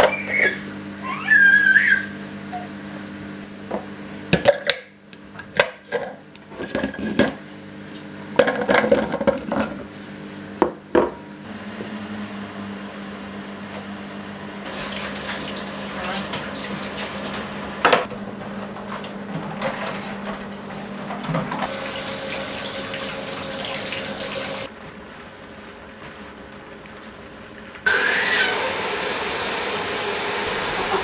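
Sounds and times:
short high gliding call: 0:27.9 - 0:28.8.

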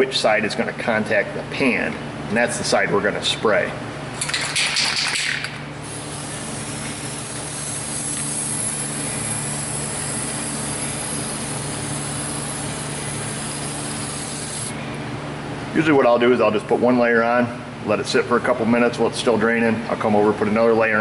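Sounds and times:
aerosol can spraying hiss: 0:05.8 - 0:14.7.

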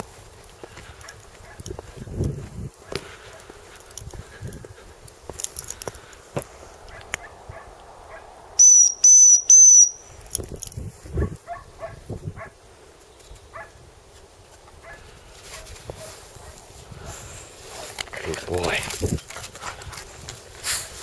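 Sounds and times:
whistle blasts: 0:08.6 - 0:10.2.

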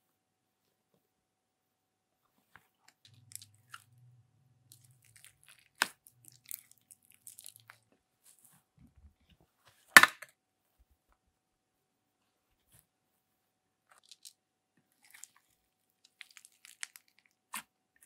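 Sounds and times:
slime crackling and popping: 0:03.1 - 0:03.9, 0:04.7 - 0:07.8, 0:16.1 - 0:17.7.

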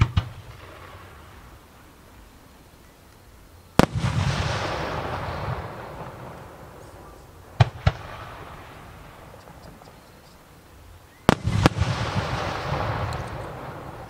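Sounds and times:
firework bangs: 0:00.0 - 0:01.7, 0:03.7 - 0:09.9, 0:11.2 - 0:14.0.

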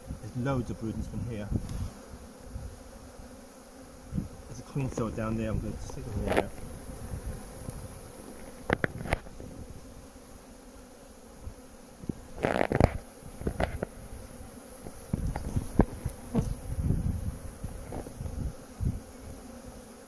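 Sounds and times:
honeybees buzzing: 0:00.0 - 0:20.0
hive tool knocking and scraping: 0:04.6 - 0:06.7, 0:07.5 - 0:09.6, 0:11.4 - 0:17.0, 0:17.6 - 0:18.5.

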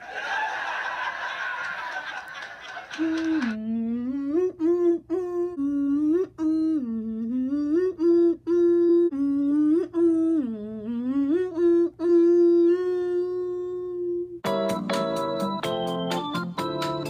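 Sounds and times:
person humming a tune: 0:03.0 - 0:14.4.

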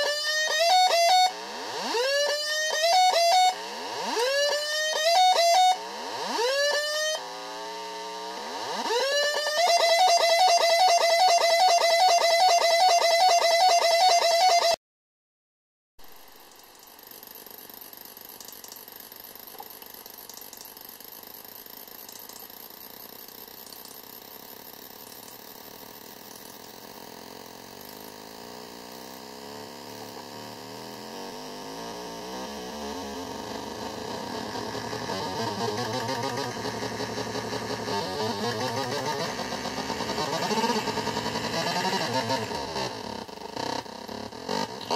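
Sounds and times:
buzzy electronic drone: 0:00.0 - 0:14.8, 0:29.6 - 0:44.9.

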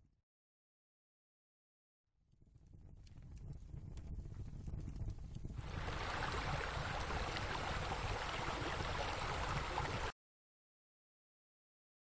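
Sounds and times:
rushing water noise: 0:05.6 - 0:10.1.

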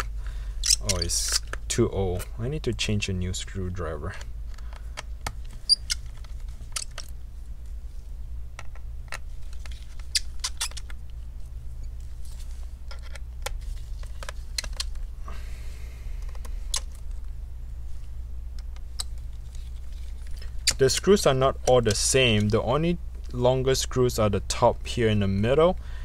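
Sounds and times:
steady low hum: 0:00.0 - 0:26.0
screwdriver squeaks: 0:00.6 - 0:01.6, 0:05.6 - 0:07.1, 0:10.0 - 0:10.9, 0:20.6 - 0:20.9.

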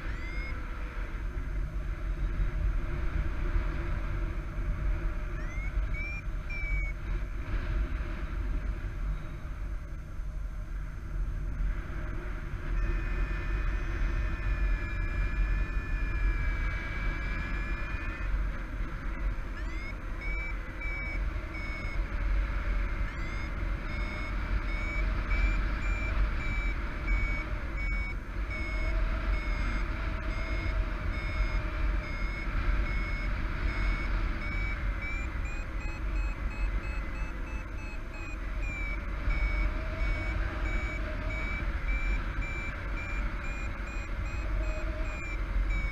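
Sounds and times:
variometer beeping: 0:00.0 - 0:00.6, 0:05.2 - 0:07.1, 0:12.0 - 0:45.9.

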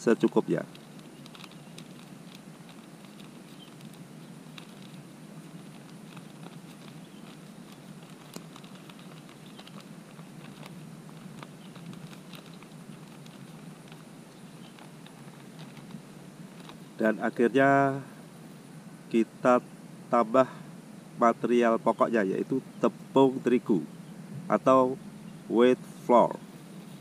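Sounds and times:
plastic bag crinkling: 0:00.0 - 0:17.0
low background noise: 0:00.0 - 0:27.0
faint ticks: 0:00.2 - 0:16.9.

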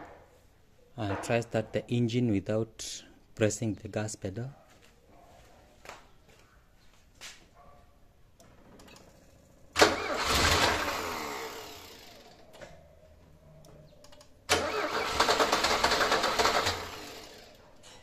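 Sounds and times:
car engine cranking on starter: 0:08.9 - 0:12.4, 0:14.5 - 0:17.6.

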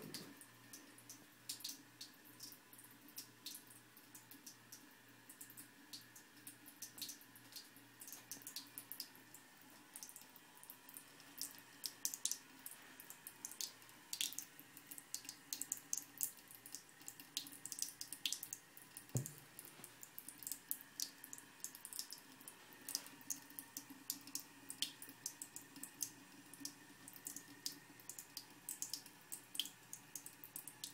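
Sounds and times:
water trickling into a sink: 0:00.0 - 0:30.9
soft thump: 0:19.2 - 0:19.4.

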